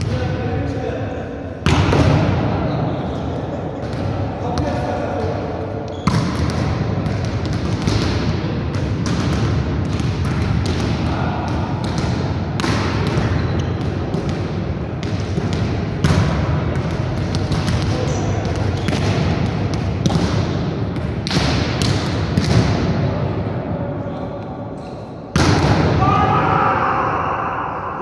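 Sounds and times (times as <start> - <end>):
volleyballs being hit: 1.6 - 2.6, 3.8 - 23.1, 25.3 - 26.0
balls bouncing off gym floor: 3.8 - 22.9.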